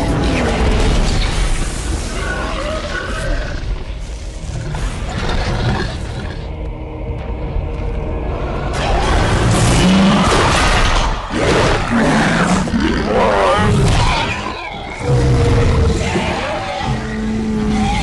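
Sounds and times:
dinosaur roars and growls: 2.1s - 6.6s, 8.5s - 18.0s.

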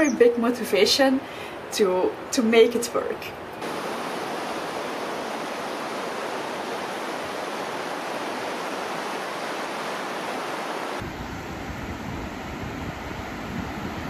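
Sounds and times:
deeper surf: 3.4s - 14.0s
small waves washing on sand: 3.6s - 11.0s
wind buffeting microphone: 3.6s - 14.0s.

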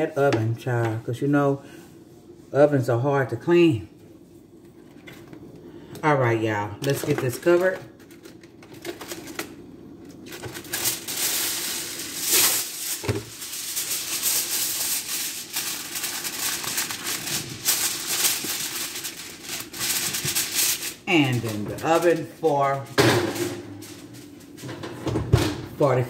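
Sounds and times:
aluminium foil crinkling: 6.8s - 24.7s.

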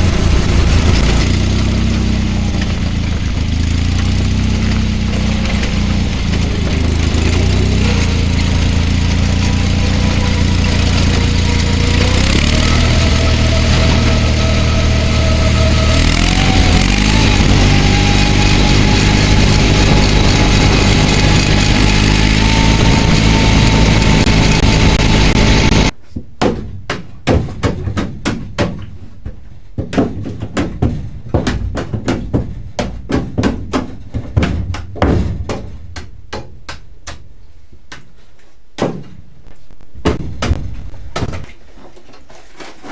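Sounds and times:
small vehicle engine running: 0.0s - 26.0s
irregular knocks and taps: 26.2s - 37.3s.

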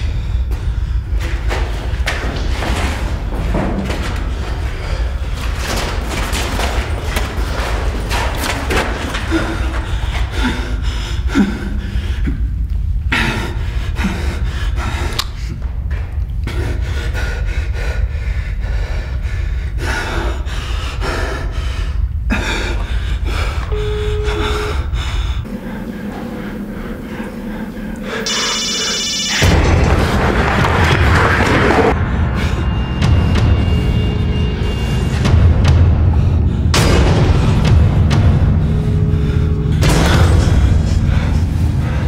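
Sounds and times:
low rumbling drone: 0.0s - 42.0s.

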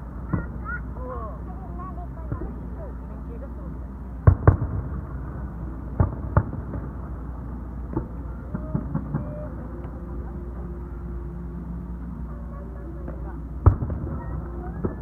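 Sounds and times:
low background rumble: 0.0s - 15.0s
fireworks popping and cracking: 4.2s - 5.3s, 5.9s - 7.2s, 13.6s - 15.0s
fireworks booming: 4.2s - 9.6s, 13.6s - 15.0s.

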